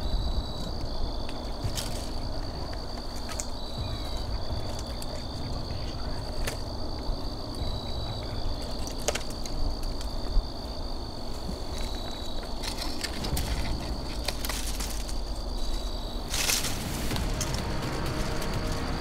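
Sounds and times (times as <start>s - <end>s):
insects chirring: 0.0s - 19.0s
low rumble: 3.7s - 8.7s, 13.1s - 19.0s.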